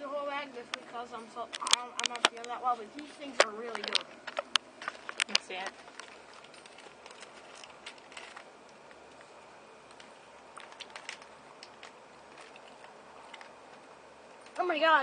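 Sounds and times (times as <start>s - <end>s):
low steady hiss: 0.0s - 15.0s
small clicks: 1.5s - 9.3s.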